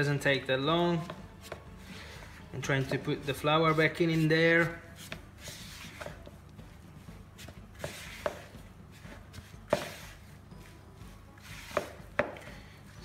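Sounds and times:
spatula scraping dough in bowl: 0:01.0 - 0:06.2, 0:07.4 - 0:10.8, 0:11.4 - 0:12.4.

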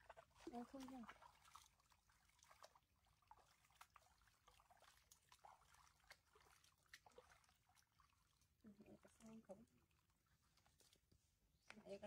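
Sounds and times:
faint small ticks and taps: 0:11.6 - 0:11.9.

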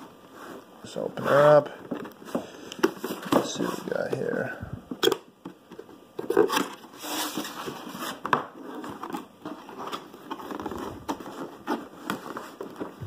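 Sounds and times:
hand scraping cardboard box: 0:00.3 - 0:01.8, 0:06.2 - 0:13.0.

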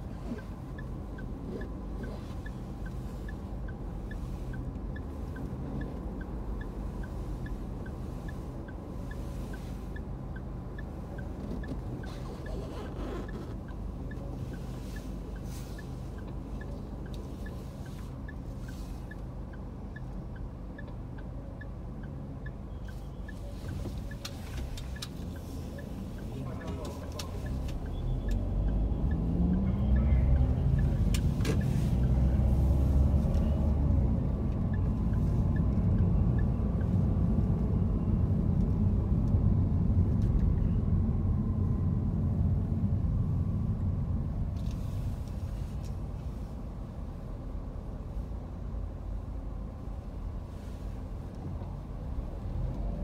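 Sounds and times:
light regular ticking: 0:00.0 - 0:37.4
car engine and road hum: 0:00.0 - 0:53.0.

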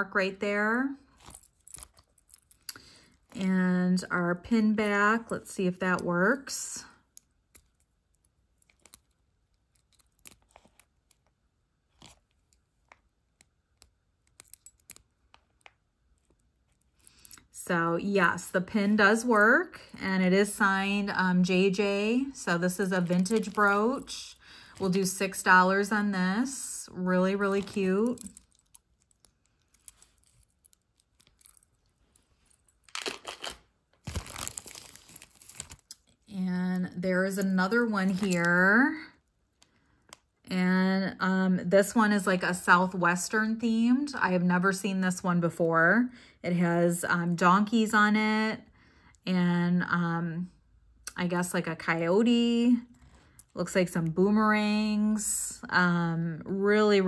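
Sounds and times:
small metallic clicks and scrapes: 0:07.1 - 0:11.3, 0:11.9 - 0:17.6, 0:27.4 - 0:33.0
metal brooch clicks: 0:13.4 - 0:15.7
plastic zip bag crinkling: 0:27.3 - 0:36.3.

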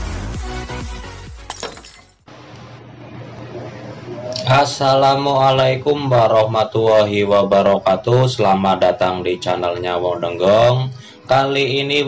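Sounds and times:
intro music: 0:00.0 - 0:01.5
low electrical hum: 0:01.8 - 0:07.9.

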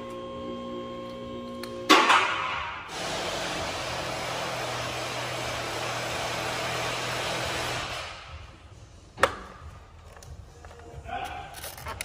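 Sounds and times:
machine low hum: 0:00.0 - 0:07.8.

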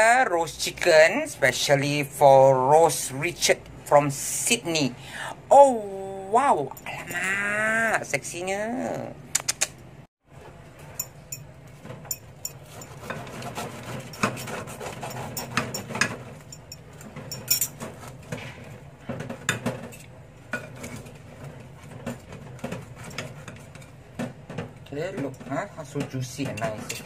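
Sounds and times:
cutlery scraping ceramic dish: 0:12.1 - 0:18.6, 0:22.0 - 0:23.9.

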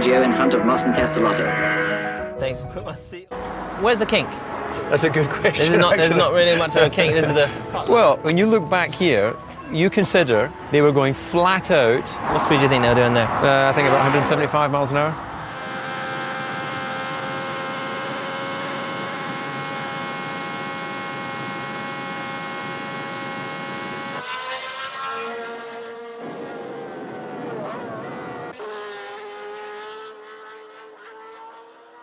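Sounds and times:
racing cars passing by: 0:03.3 - 0:19.4, 0:23.4 - 0:32.0
racing car engine at high revs: 0:11.6 - 0:32.0.

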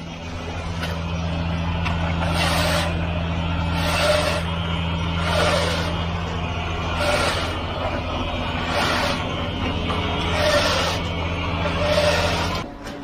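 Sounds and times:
diesel truck engine droning: 0:00.0 - 0:13.0
straight edge scraping wet concrete: 0:02.2 - 0:03.0, 0:03.7 - 0:04.5, 0:05.2 - 0:06.0, 0:06.9 - 0:09.4, 0:10.2 - 0:12.6.

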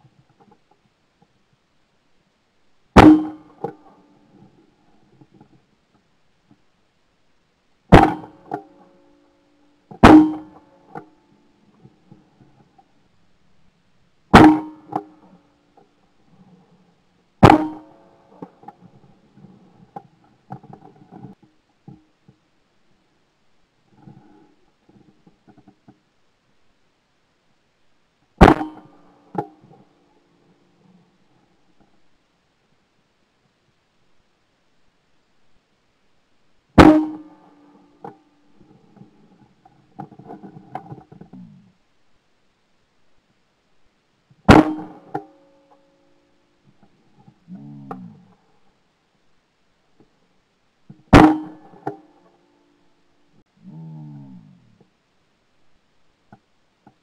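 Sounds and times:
shotgun shots: 0:03.0 - 0:03.5.

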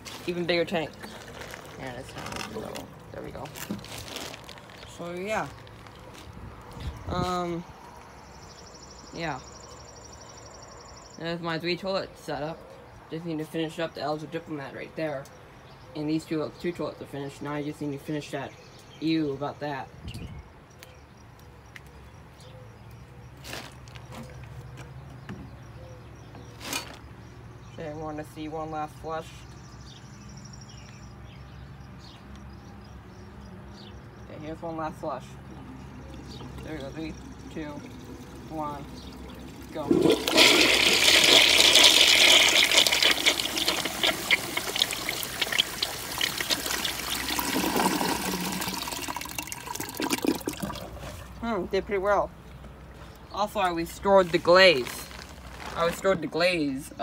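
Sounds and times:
water gurgling and trickling: 0:35.8 - 0:51.4
toilet flushing: 0:37.4 - 0:51.1.

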